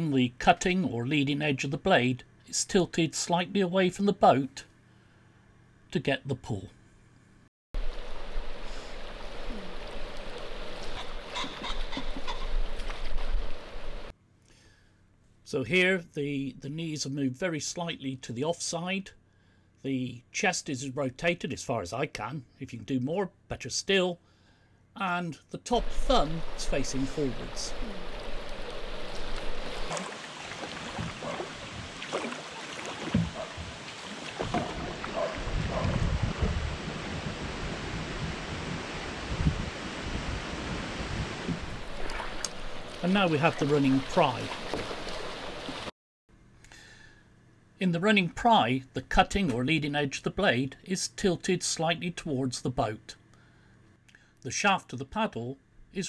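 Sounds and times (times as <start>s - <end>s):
water swishing around paddle: 7.8s - 14.1s, 25.8s - 37.8s, 41.2s - 45.9s
short animal calls: 10.8s - 12.6s
wind rumbling on microphone: 27.3s - 30.0s, 33.0s - 43.0s.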